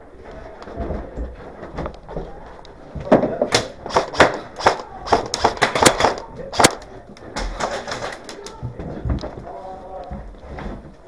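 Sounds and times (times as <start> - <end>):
airsoft gunfire clacks: 3.6 - 6.9.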